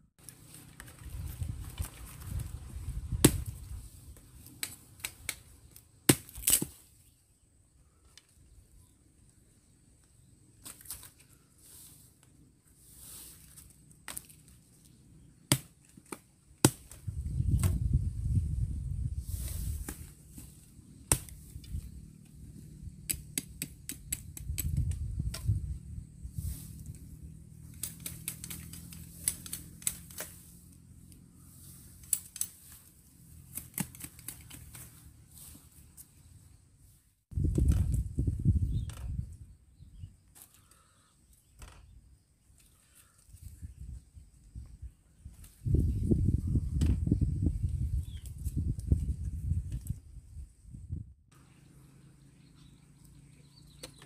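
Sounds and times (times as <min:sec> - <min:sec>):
dry leaves rustling: 0:00.2 - 0:05.2, 0:10.6 - 0:15.0, 0:26.3 - 0:36.2
dry sticks snapping: 0:03.2 - 0:06.8, 0:14.0 - 0:17.8, 0:21.1 - 0:22.4, 0:23.0 - 0:25.6, 0:27.6 - 0:30.5, 0:32.0 - 0:35.0.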